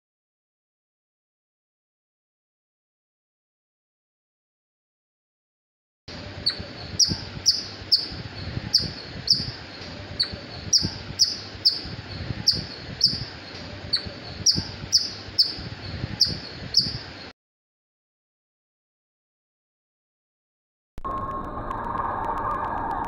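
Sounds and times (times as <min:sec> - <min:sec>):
low background hiss: 0:06.1 - 0:17.3
squirrel chirping: 0:06.3 - 0:17.3.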